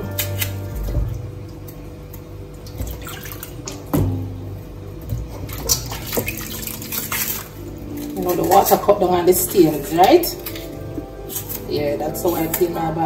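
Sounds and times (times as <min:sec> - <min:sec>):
water sloshing and dripping: 0:00.0 - 0:13.0.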